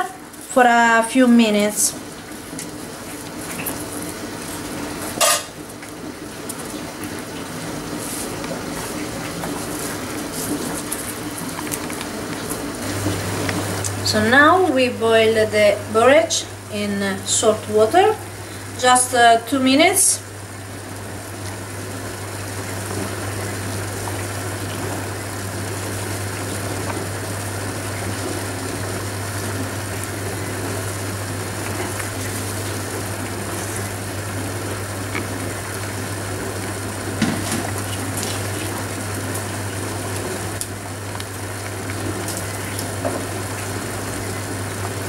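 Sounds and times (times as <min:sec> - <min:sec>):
water boiling in a pot: 0:00.0 - 0:45.0.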